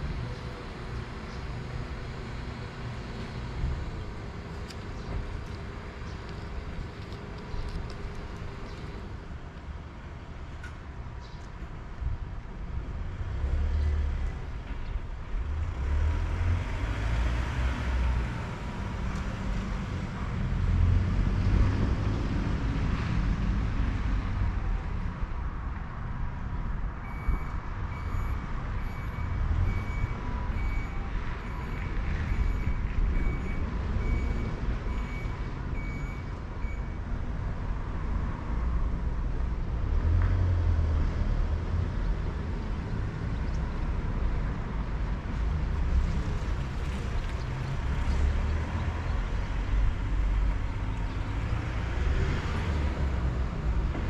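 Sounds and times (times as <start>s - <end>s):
low vehicle rumble: 0.0s - 54.0s.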